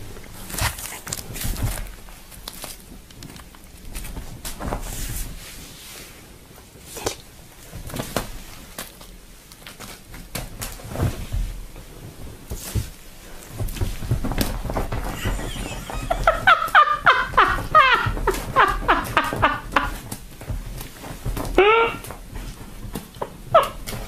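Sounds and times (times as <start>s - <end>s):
foil ball crinkling: 0.1s - 4.6s.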